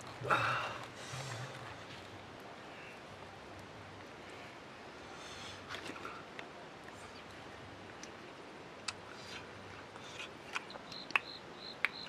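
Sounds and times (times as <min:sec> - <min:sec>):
low outdoor hiss: 0:00.0 - 0:12.0.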